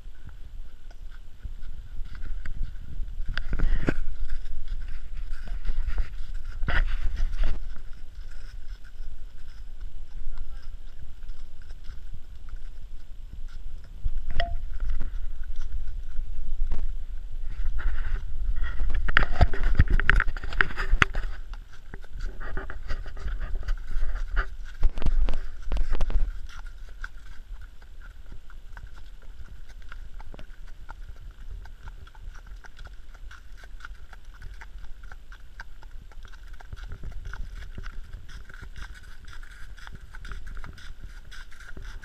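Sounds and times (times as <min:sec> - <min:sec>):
horse hooves on leafy track: 0:00.0 - 0:42.0
microphone rumble and knocking: 0:01.4 - 0:08.4, 0:13.7 - 0:26.6.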